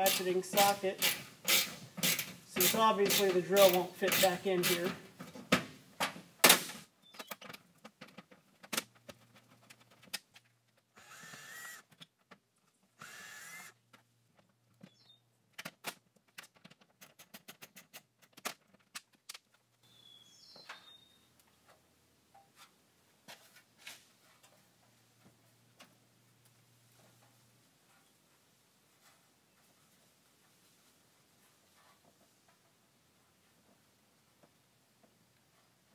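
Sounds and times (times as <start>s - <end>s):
ratchet wrench clicking: 1.0s - 4.8s.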